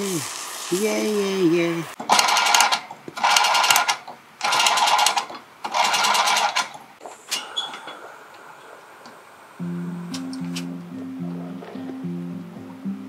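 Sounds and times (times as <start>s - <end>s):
faint lighter hiss: 7.0s - 10.8s.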